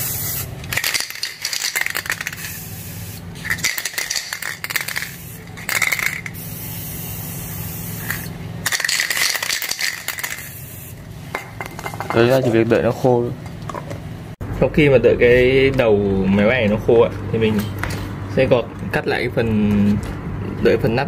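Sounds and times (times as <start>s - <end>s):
spray paint spraying: 0.0s - 11.1s
spray can ball rattling: 0.0s - 12.1s.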